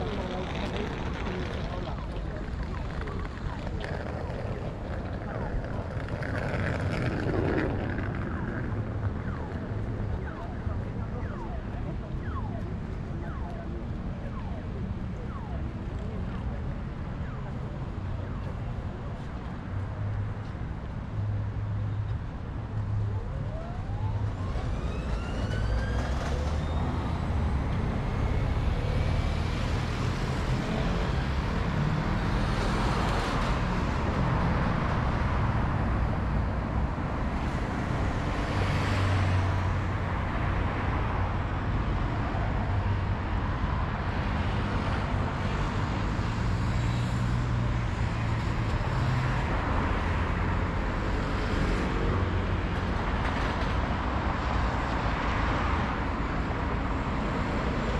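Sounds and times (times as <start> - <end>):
rising whine: 0.0 - 14.0
vehicles passing: 0.0 - 57.9.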